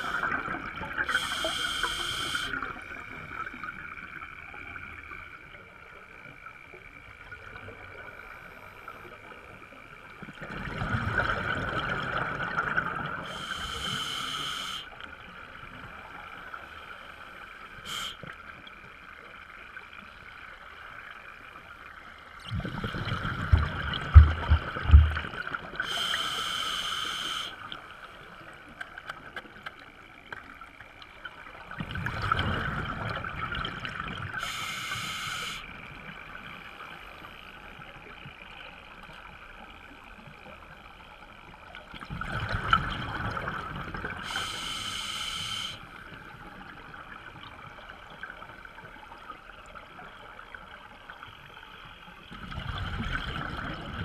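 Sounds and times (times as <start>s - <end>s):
scuba breathing through regulator: 1.0s - 2.6s, 13.3s - 14.9s, 25.8s - 27.6s, 34.4s - 35.7s, 44.2s - 45.8s
exhaled bubbles: 22.4s - 26.1s.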